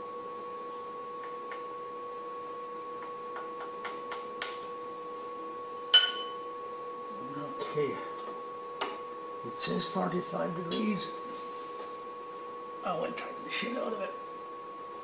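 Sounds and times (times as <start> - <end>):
steady two-pitch hum: 1.0 - 15.0
ringing metal strike: 5.9 - 6.5
metal tool tapping on steel: 6.0 - 6.4.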